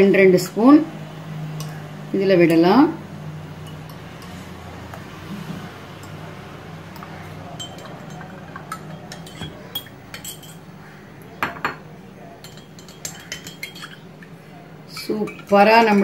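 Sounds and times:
spoon clinking in glass mug: 7.6s - 10.6s, 12.4s - 14.1s.

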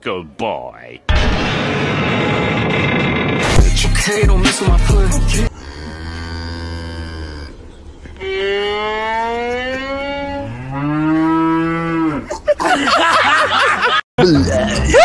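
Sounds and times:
cow mooing: 5.5s - 7.6s, 8.2s - 12.3s.

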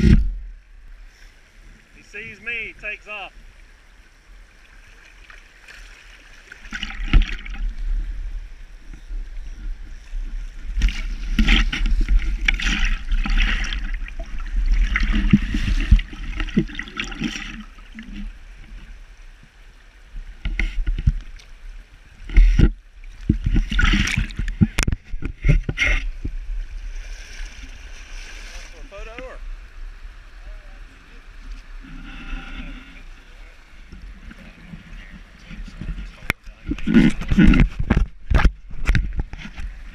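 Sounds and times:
water splashing and gurgling: 0.0s - 39.9s.

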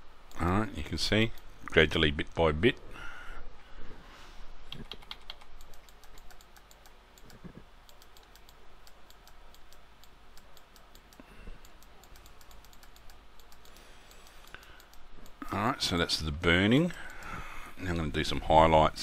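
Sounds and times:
keyboard keys clicking: 4.7s - 9.8s.

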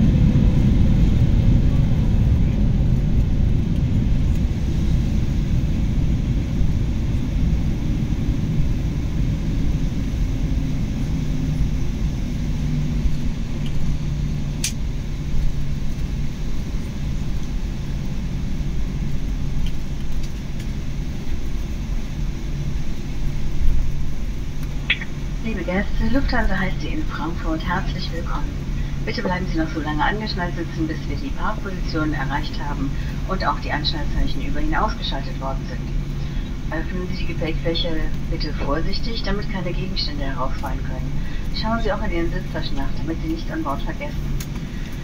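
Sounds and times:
aircraft cabin rumble: 0.0s - 45.0s
faint hum: 0.0s - 45.0s
click: 14.6s - 14.8s.

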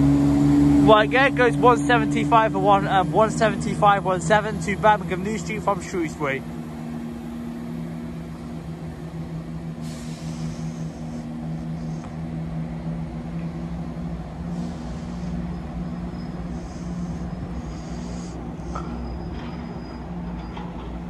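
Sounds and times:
diesel train engine drone: 0.0s - 21.0s
short bursts of high hiss: 9.8s - 12.0s.

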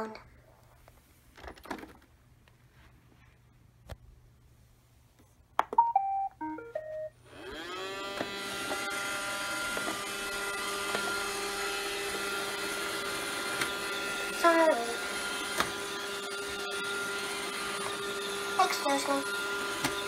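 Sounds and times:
vacuum motor whine and hum: 7.2s - 20.0s.

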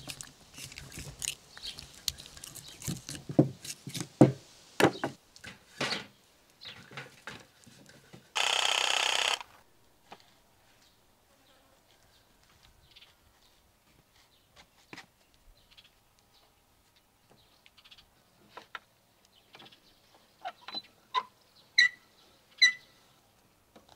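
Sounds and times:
knife cutting bone joint: 0.0s - 4.1s
steady buzz: 8.4s - 9.5s.

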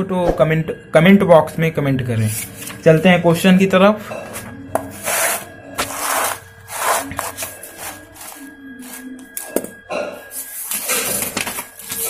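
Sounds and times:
paper pages rustling: 2.3s - 3.0s, 4.2s - 9.6s, 10.4s - 12.0s.

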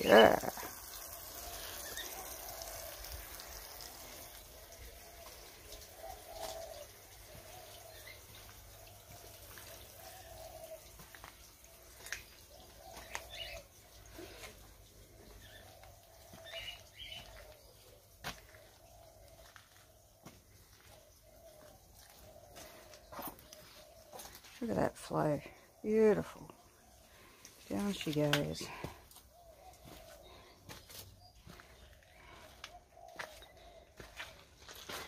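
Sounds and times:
water trickling in drain: 0.0s - 24.5s
birds chirping: 0.0s - 35.0s.

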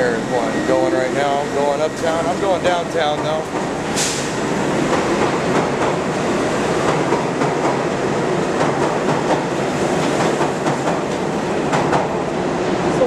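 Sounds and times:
subway train rushing past: 0.0s - 13.0s
wheels clicking over rails: 1.2s - 3.8s.

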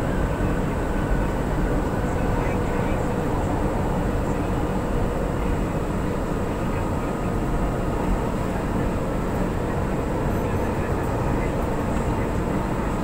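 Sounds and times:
train running inside carriage: 0.0s - 13.0s.

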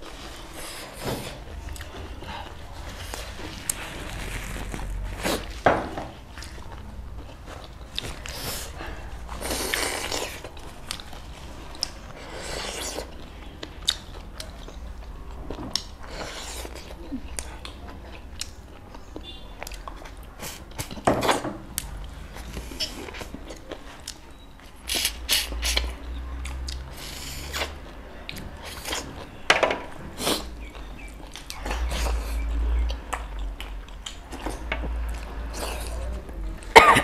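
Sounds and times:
chewing and mouth smacks: 9.3s - 21.0s, 21.7s - 29.3s, 30.2s - 36.7s.

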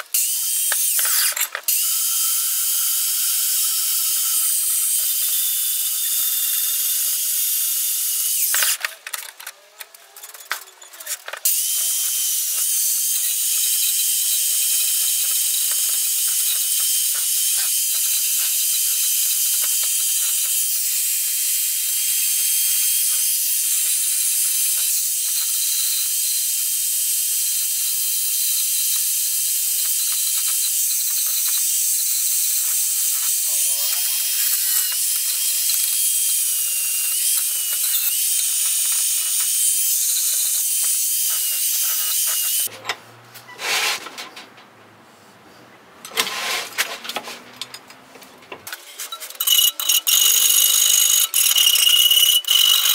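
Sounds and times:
drill motor whine: 0.1s - 8.8s, 11.4s - 42.7s, 49.4s - 52.9s
wire wheel scrubbing steel: 49.1s - 52.9s.

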